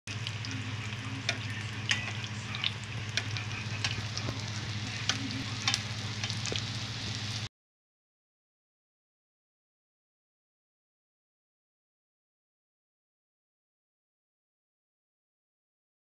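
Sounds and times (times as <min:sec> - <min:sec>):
food sizzling in oil: 0:00.1 - 0:07.5
low hum: 0:00.1 - 0:07.5
tongs clicking: 0:00.8 - 0:06.6.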